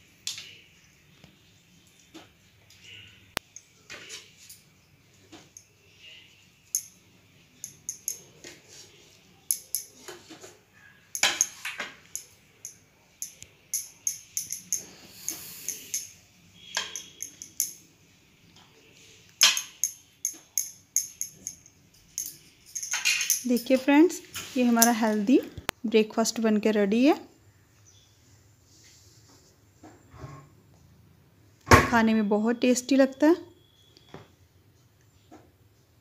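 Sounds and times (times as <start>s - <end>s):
spoon scraping ceramic bowl: 13.8s - 17.8s.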